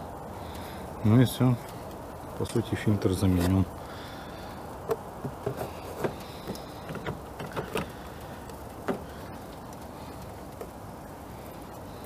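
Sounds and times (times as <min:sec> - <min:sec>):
plastic parts clicking and knocking: 0:04.8 - 0:08.0, 0:08.8 - 0:09.1.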